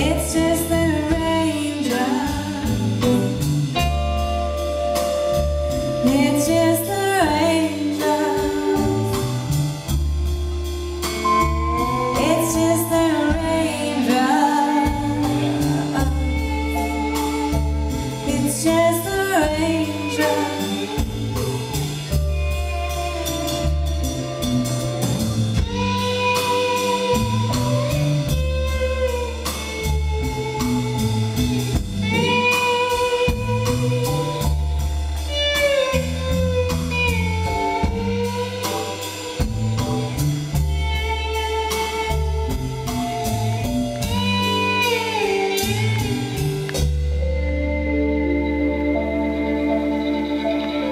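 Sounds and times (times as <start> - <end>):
woman singing: 0.0 - 3.5, 6.0 - 9.5, 11.3 - 23.4
live rock band playing: 0.0 - 50.9.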